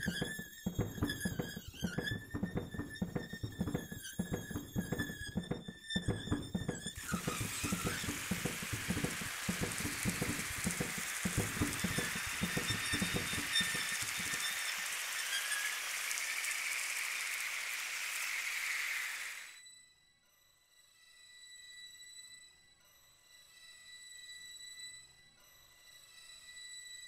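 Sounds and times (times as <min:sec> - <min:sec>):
low crackles and knocks: 0:00.0 - 0:15.1
steady hiss: 0:07.0 - 0:19.5.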